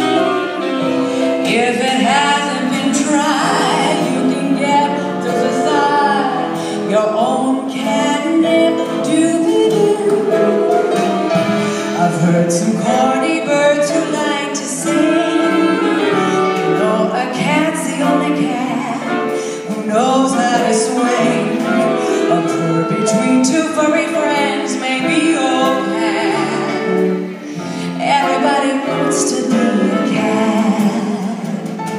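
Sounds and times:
woman singing into a microphone: 0.0s - 10.7s, 11.8s - 31.9s
instrumental accompaniment: 0.0s - 31.9s.

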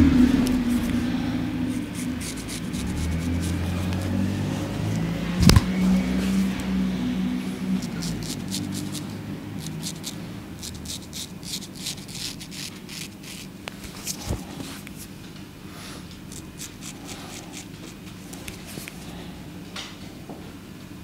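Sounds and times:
razor scraping stubble: 1.7s - 5.6s, 7.7s - 14.6s, 16.3s - 19.0s.

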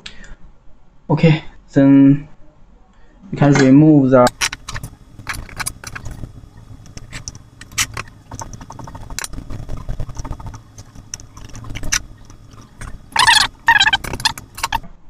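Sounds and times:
cables and connectors clicking: 4.2s - 14.9s.

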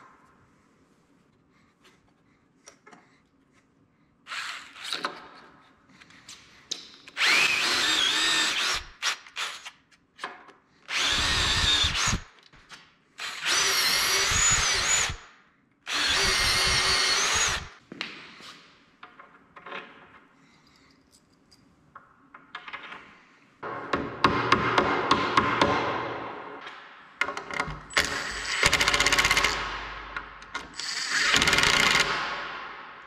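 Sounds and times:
cordless drill boring into wood: 7.2s - 9.7s, 10.9s - 12.3s, 13.2s - 15.2s, 15.9s - 17.7s, 30.8s - 32.2s.

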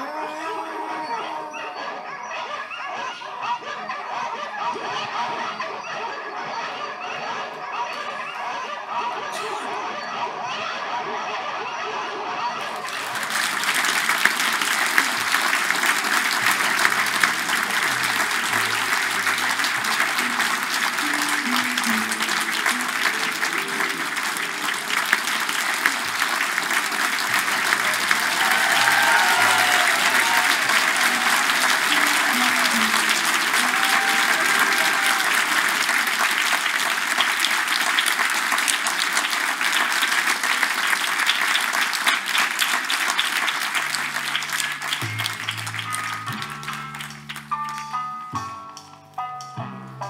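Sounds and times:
audience applauding: 0.0s - 1.6s, 3.2s - 48.2s
voices: 0.0s - 36.2s.

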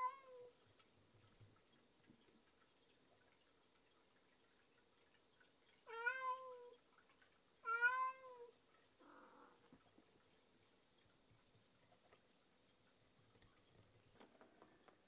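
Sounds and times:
cat meowing: 5.9s - 6.7s, 7.6s - 9.6s.

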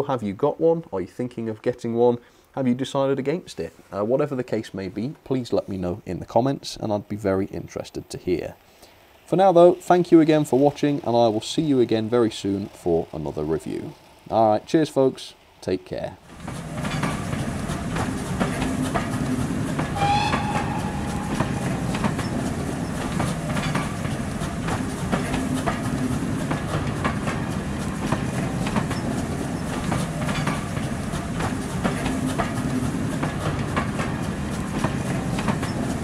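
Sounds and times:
train wheels clickety-clack: 16.3s - 36.0s
high-pitched tone: 20.0s - 22.5s.

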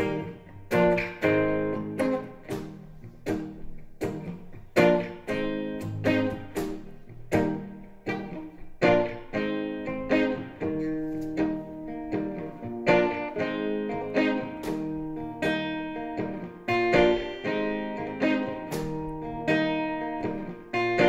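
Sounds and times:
acoustic guitar plucked chords: 0.0s - 21.0s.

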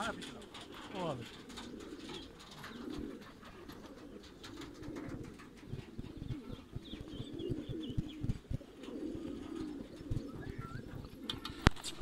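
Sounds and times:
pigeons cooing: 0.0s - 12.0s
soft low thumps: 5.7s - 8.8s.

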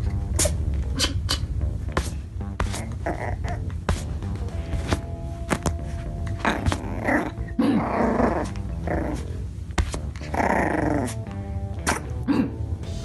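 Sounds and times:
puppy growling in play: 2.8s - 3.7s, 6.3s - 9.5s, 10.1s - 12.5s.

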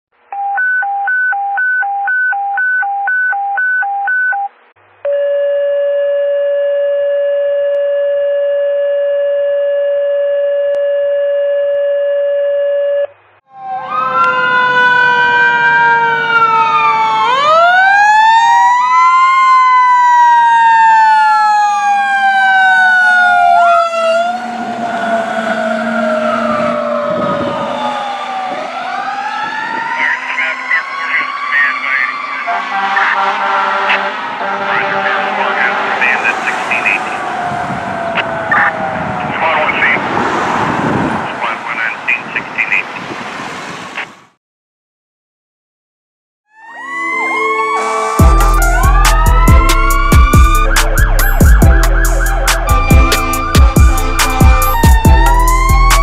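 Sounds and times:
electronic wail siren: 5.1s - 40.1s, 46.5s - 56.0s
long steady alert tone: 46.6s - 56.0s.

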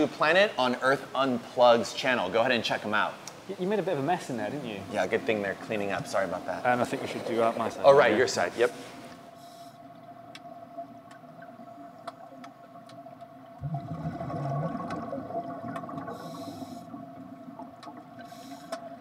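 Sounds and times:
steady low hum: 1.0s - 19.0s
water gurgling: 4.6s - 19.0s
faint clicks: 9.9s - 13.6s, 17.6s - 19.0s
hissy bubbling rushes: 10.5s - 19.0s.

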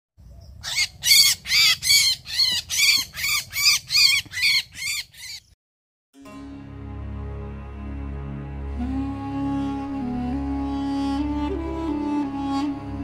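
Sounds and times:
bird squawking calls: 0.4s - 5.6s.

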